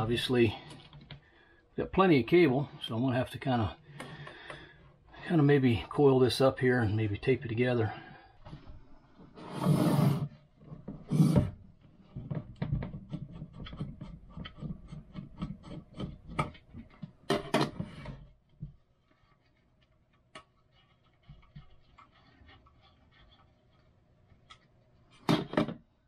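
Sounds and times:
rubbing scrapes on wood: 9.4s - 10.4s.

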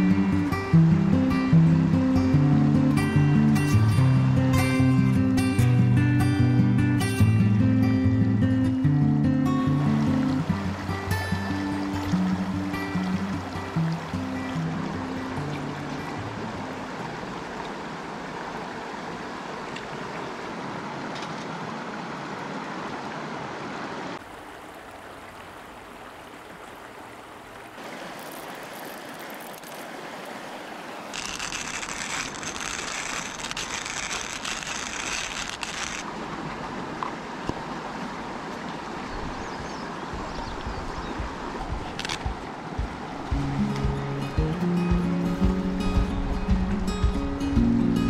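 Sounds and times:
stream running over rocks: 0.0s - 48.0s
coffee mill grinding beans: 31.2s - 36.0s.

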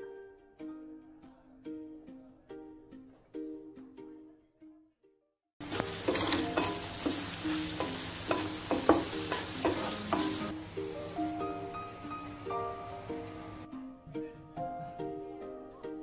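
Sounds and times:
background music: 0.0s - 16.0s
chicken sizzling in a pan: 5.6s - 13.7s
spatula clacking against pan: 5.7s - 10.5s.

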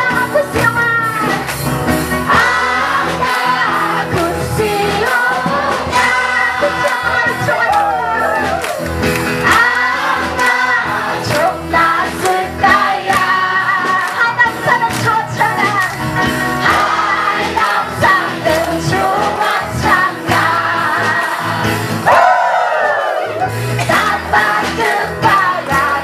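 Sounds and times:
congregation singing worship song: 0.0s - 26.0s
instrumental backing with steady beat: 0.0s - 26.0s
people clapping along: 0.0s - 26.0s.

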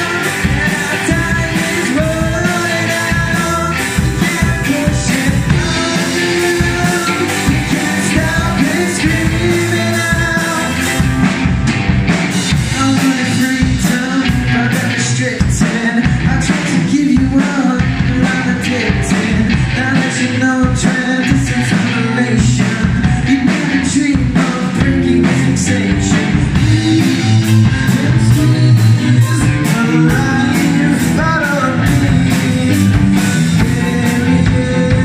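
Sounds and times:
lead vocalist singing: 0.0s - 11.4s, 12.3s - 35.0s
rock band playing live: 0.0s - 35.0s.

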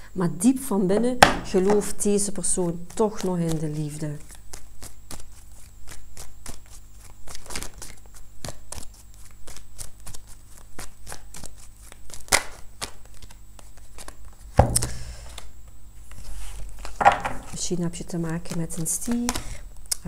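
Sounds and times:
deck of cards shuffling: 2.9s - 19.5s
heavier thump: 14.5s - 15.3s.

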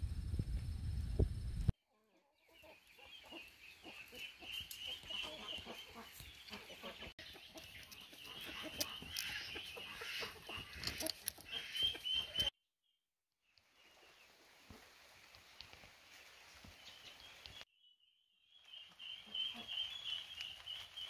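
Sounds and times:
chickens clucking: 2.1s - 12.5s, 19.2s - 20.0s.

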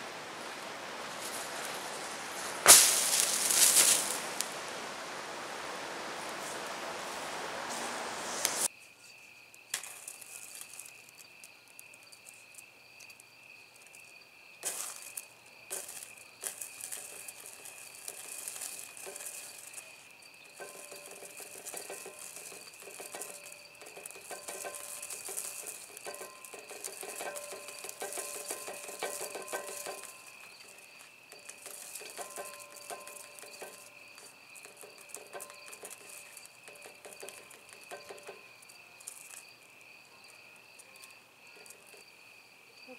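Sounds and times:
burning pile hissing: 0.0s - 8.7s, 14.6s - 39.7s
crickets chirping: 0.0s - 42.9s
metal shavings burning with crackling: 0.3s - 8.7s, 9.7s - 12.4s, 13.8s - 39.6s.

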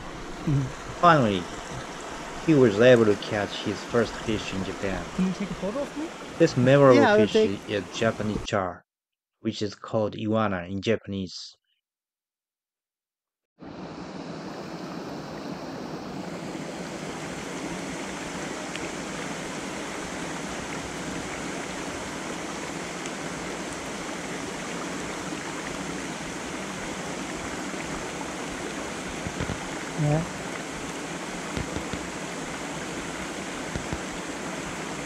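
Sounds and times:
water pouring over weir: 0.0s - 5.2s
rocky stream rushing: 0.0s - 7.8s, 13.8s - 35.0s.

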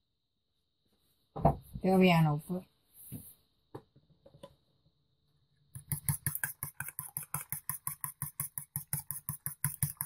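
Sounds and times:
spoon beating eggs in a bowl: 5.7s - 10.0s.

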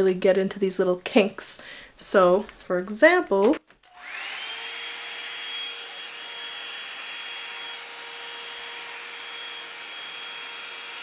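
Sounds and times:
hot air brush blowing and whining: 3.9s - 11.0s.

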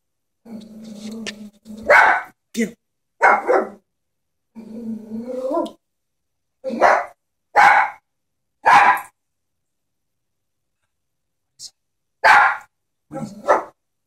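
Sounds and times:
dog growling: 0.4s - 2.0s, 4.5s - 5.8s, 13.1s - 13.7s
small dog barking: 1.8s - 2.4s, 3.2s - 3.8s, 6.7s - 8.0s, 8.6s - 9.2s, 12.2s - 13.8s.

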